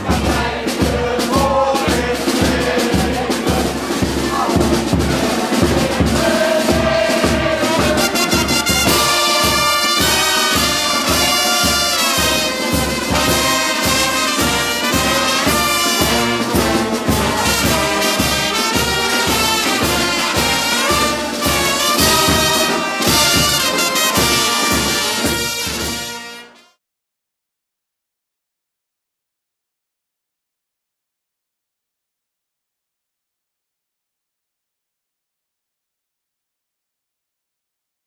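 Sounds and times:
bass drum beat: 0.0 - 25.6
brass band playing: 0.0 - 26.8.

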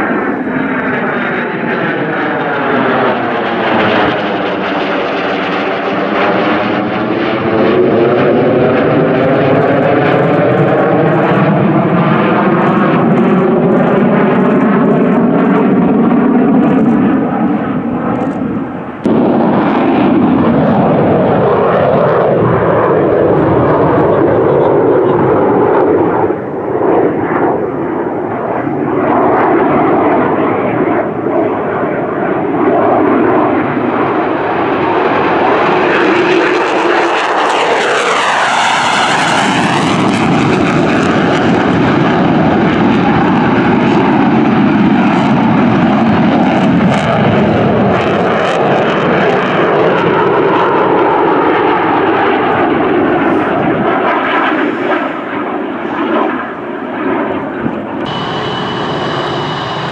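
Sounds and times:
jet whoosh overhead: 0.0 - 31.6, 51.6 - 57.4, 58.1 - 59.9
jet engine roar: 0.0 - 59.9.

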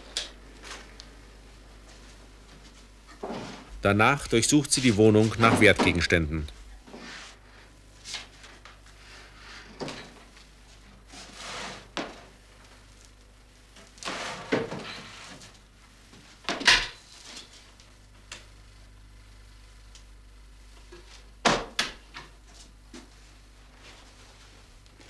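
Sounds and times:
knocks scrapes and rustles: 3.1 - 3.7, 11.1 - 12.2, 14.0 - 15.6.

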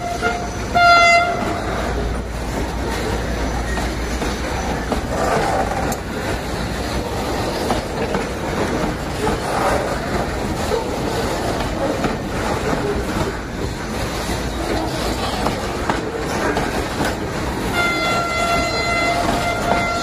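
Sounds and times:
train wheels rumbling on rails: 0.0 - 20.0
wagons clanking: 0.0 - 20.0.

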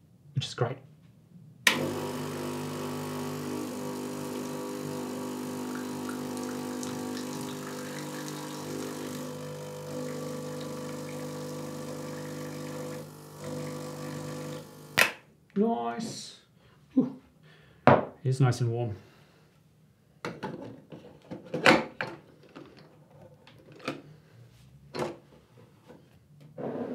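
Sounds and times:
espresso machine pump humming: 1.7 - 15.0.

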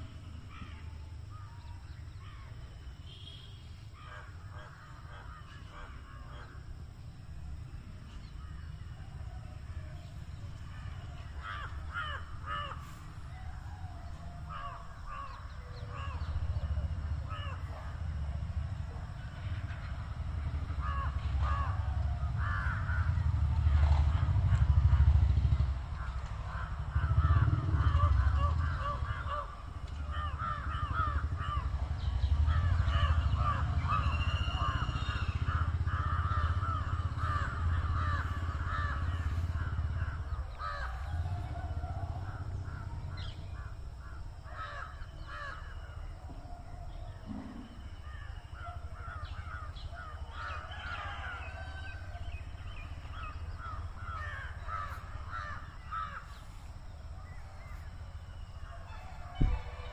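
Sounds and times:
birds calling: 0.0 - 59.9
low steady rumble: 0.0 - 59.9
crows cawing: 0.4 - 1.5, 4.0 - 6.7, 10.6 - 17.9, 19.7 - 23.2, 25.9 - 46.0, 47.0 - 59.9.

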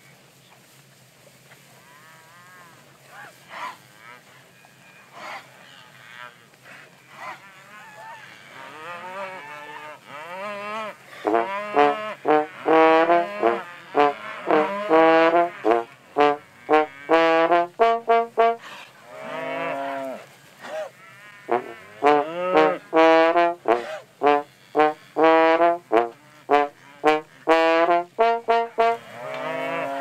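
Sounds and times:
solo trombone playing: 11.2 - 18.6, 21.5 - 30.0.

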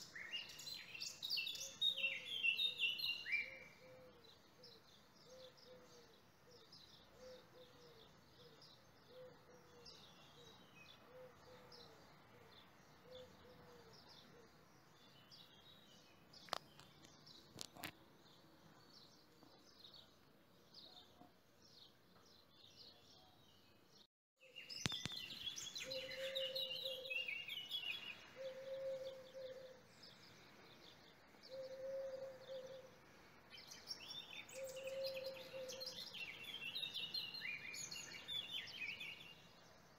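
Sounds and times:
small birds chirping: 0.0 - 39.9
low bird call: 24.8 - 29.8, 31.5 - 33.0, 34.2 - 36.8.

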